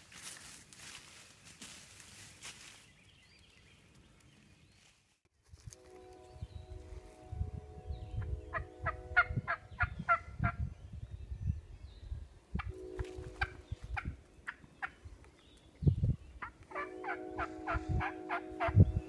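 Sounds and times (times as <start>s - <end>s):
turkey call yelps: 16.4s - 18.8s.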